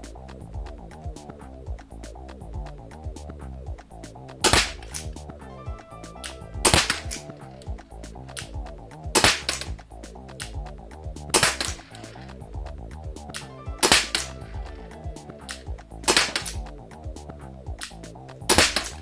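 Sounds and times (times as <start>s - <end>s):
airsoft pistol shots: 4.5s - 4.8s, 16.1s - 16.6s.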